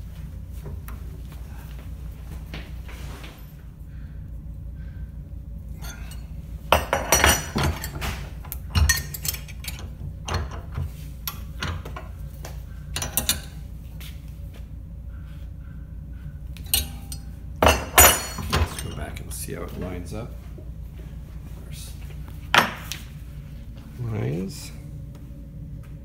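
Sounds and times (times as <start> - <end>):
metal parts clinking against a vise: 6.8 - 12.1, 13.0 - 13.6, 16.7 - 19.1.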